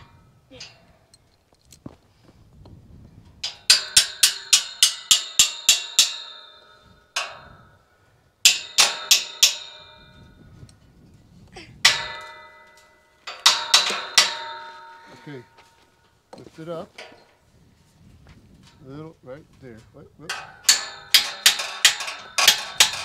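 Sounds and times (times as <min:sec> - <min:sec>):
hammer striking steel: 0:03.4 - 0:07.7, 0:08.4 - 0:10.4, 0:11.8 - 0:15.9, 0:20.3 - 0:23.0.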